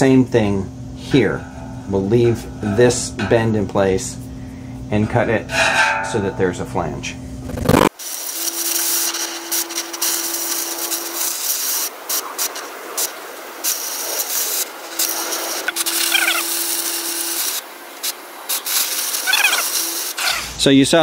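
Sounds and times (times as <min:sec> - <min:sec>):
low hum: 0:00.0 - 0:07.9
cutting torch hissing: 0:07.7 - 0:20.6.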